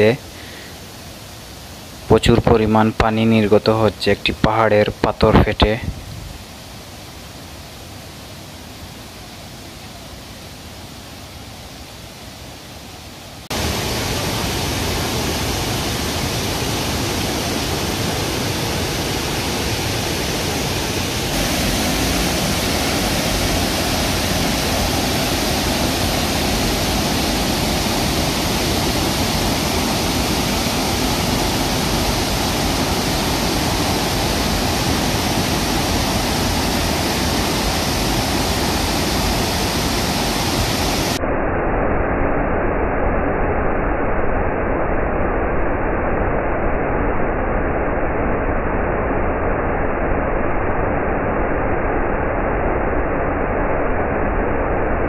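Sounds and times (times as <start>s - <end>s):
waterfall rushing: 0.0s - 5.8s, 6.4s - 41.2s.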